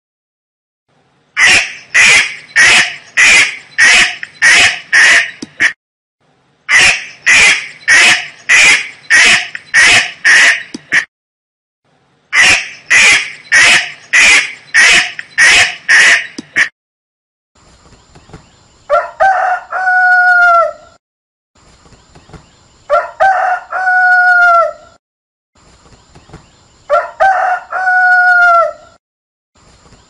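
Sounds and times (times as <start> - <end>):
duck quacking: 1.4 - 5.8, 6.7 - 11.1, 12.4 - 16.7.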